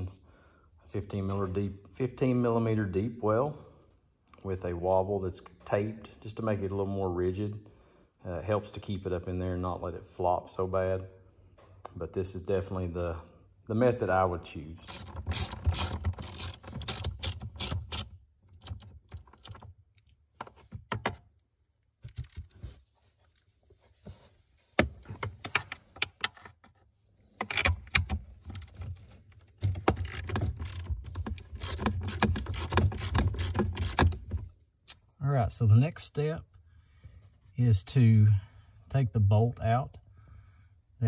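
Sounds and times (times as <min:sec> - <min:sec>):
ratchet clicking: 0:14.9 - 0:18.8, 0:29.8 - 0:34.3.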